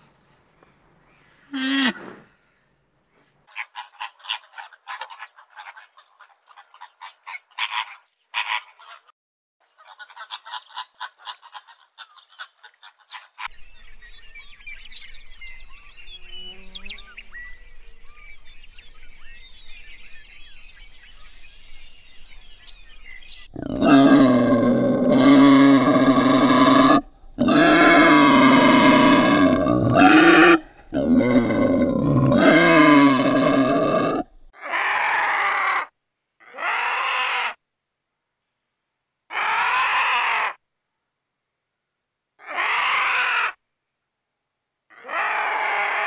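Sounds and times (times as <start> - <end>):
wild boar grunting: 23.5 - 35.4.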